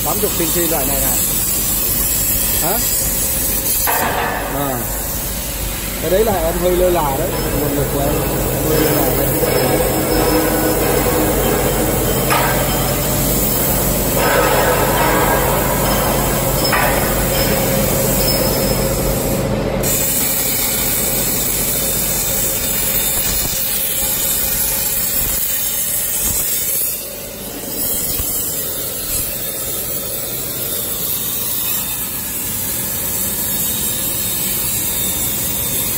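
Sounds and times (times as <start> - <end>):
plasma cutter hissing: 0.0 - 27.0, 27.7 - 35.9
machine hum: 1.2 - 23.0.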